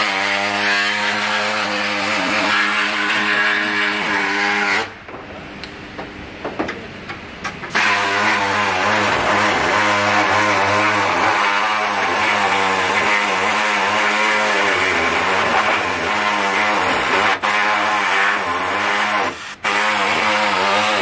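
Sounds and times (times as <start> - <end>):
pneumatic air tool on metal: 7.6 - 21.0.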